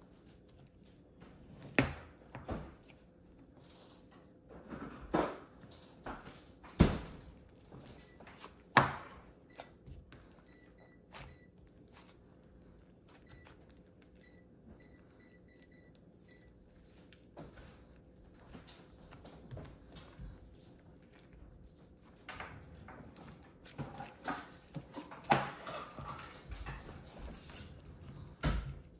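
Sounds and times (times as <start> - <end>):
slime squishing in hands: 6.2 - 28.4.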